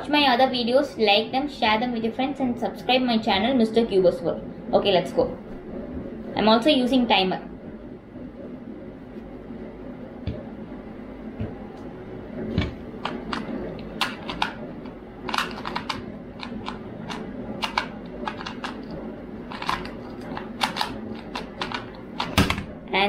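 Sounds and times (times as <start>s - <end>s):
puzzle cube plastic clicks: 13.0s - 22.5s.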